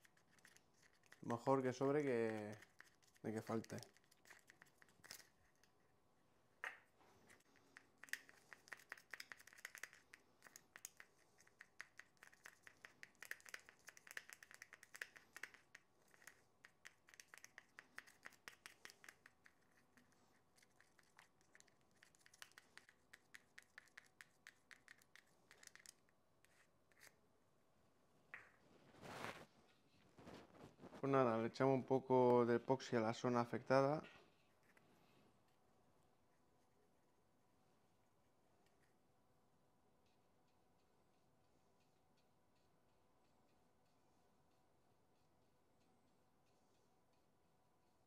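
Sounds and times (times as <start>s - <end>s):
stick stirring resin in container: 0.0s - 6.0s, 7.3s - 27.2s.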